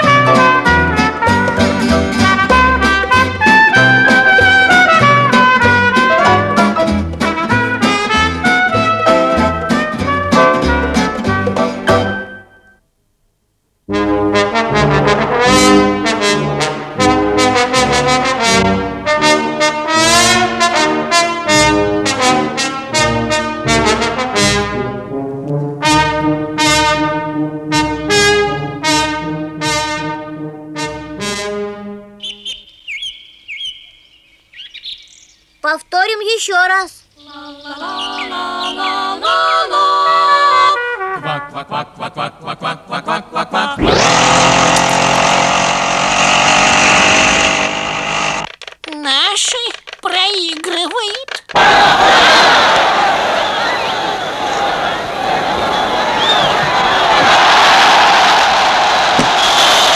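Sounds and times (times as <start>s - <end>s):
brass band playing: 0.0s - 12.3s, 13.9s - 32.2s, 40.7s - 41.6s
choir singing a cappella: 37.3s - 43.8s.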